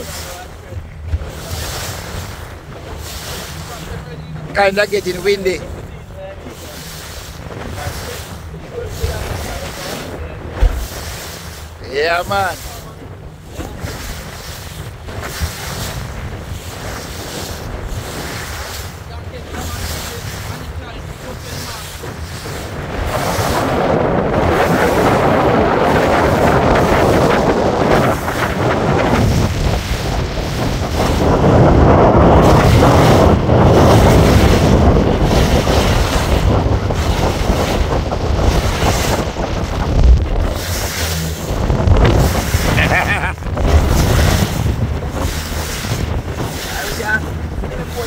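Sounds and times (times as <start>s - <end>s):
choppy water slapping boat hull: 0.0s - 48.0s
wind buffeting microphone: 0.0s - 48.0s.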